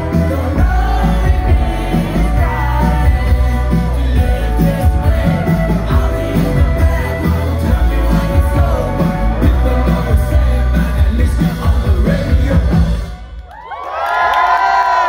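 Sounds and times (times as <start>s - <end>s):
lead singer singing: 0.0s - 13.2s
electric guitar: 0.0s - 13.3s
rock band playing: 0.0s - 13.4s
audience cheering and whooping: 13.3s - 15.0s.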